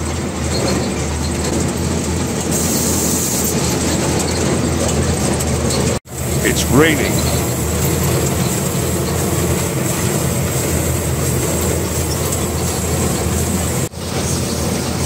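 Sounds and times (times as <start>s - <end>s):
truck engine droning: 6.3s - 14.6s.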